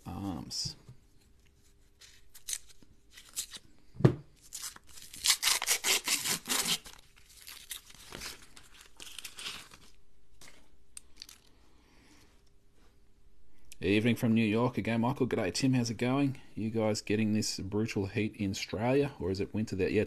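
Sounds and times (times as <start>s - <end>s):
paper ripping and crinkling: 1.6s - 3.6s, 4.4s - 10.6s.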